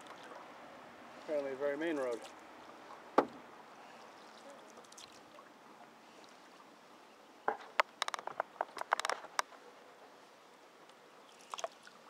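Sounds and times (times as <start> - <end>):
paddle knocks and water splashes: 1.8 - 3.6, 7.4 - 9.6.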